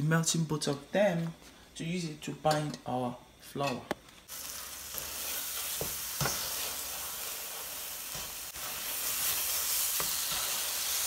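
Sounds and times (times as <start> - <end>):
cheese sizzling in a frying pan: 4.3 - 11.0
spatula scraping a pan: 4.5 - 11.0.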